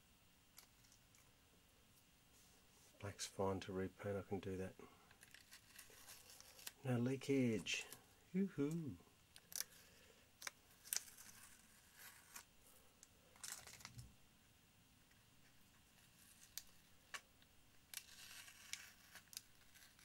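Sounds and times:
tape peeling crackles: 5.1s - 6.9s, 8.7s - 12.5s, 17.9s - 20.0s.

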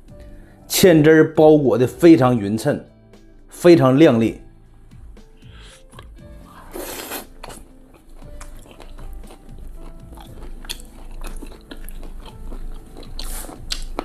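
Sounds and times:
rushing breath-like noise: 5.4s - 6.8s
man chewing: 5.4s - 14.0s.

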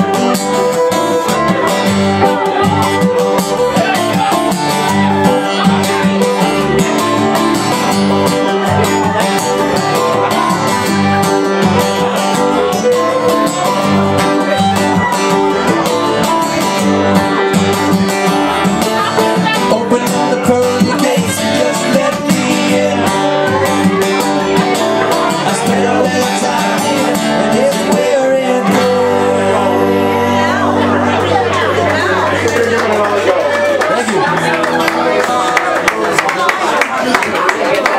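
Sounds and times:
strummed acoustic guitars: 0.0s - 37.9s
bowed fiddle: 4.8s - 19.7s.

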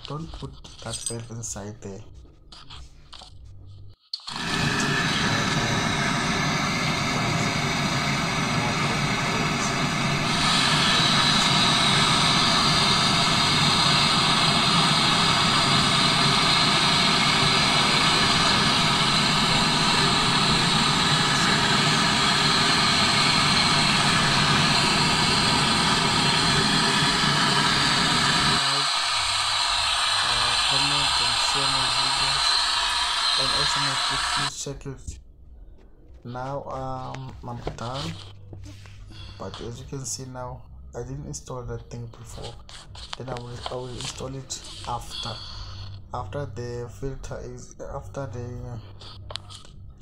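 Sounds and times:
gas torch hissing: 4.2s - 34.5s, 37.7s - 38.3s, 42.2s - 46.1s.

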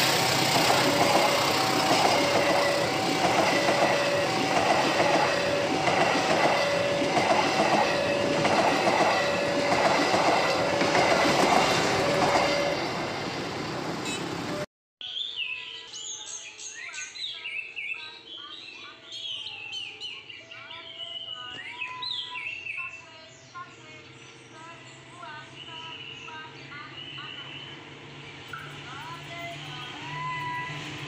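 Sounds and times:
train wheel clicks: 0.0s - 12.7s
train rumbling past: 0.0s - 14.7s, 24.5s - 31.0s
birds chirping: 14.0s - 31.0s.

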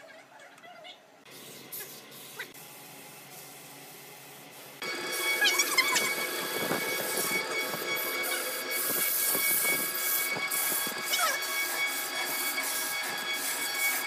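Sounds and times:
sanding spinning wood: 4.8s - 14.0s
wood lathe whine: 4.8s - 14.0s.

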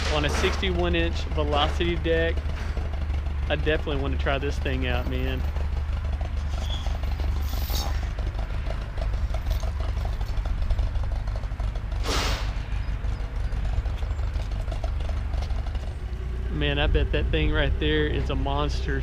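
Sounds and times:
engine idling: 0.0s - 19.0s
short hiss: 12.0s - 12.5s.

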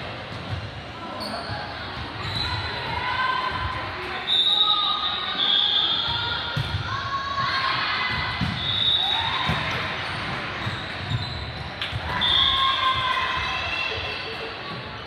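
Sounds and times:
sneakers squealing on court: 1.2s - 2.7s, 8.5s - 12.6s.

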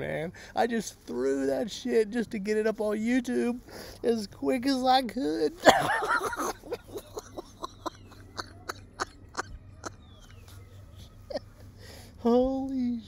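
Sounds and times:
man laughing breathily: 5.6s - 10.0s.

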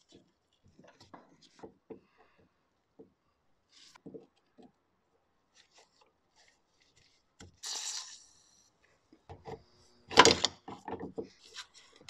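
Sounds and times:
aerosol spray can hissing: 7.6s - 8.2s.

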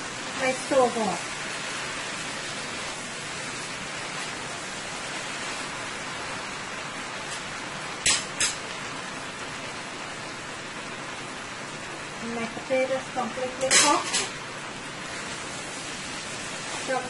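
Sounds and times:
food sizzling in a pot: 0.0s - 17.0s.

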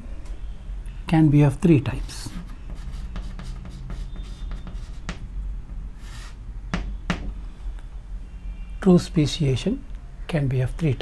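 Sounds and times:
low steady hum: 0.0s - 10.4s
chalk tapping and scraping on blackboard: 1.9s - 7.4s.

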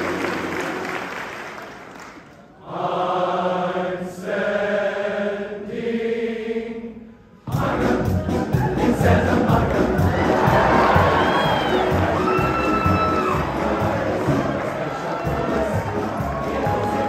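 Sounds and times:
crowd cheering: 0.0s - 2.3s, 8.2s - 17.0s
applause: 0.0s - 2.4s, 10.4s - 17.0s
men's chorus singing chords: 2.6s - 12.2s, 13.3s - 17.0s
band music: 7.5s - 17.0s.

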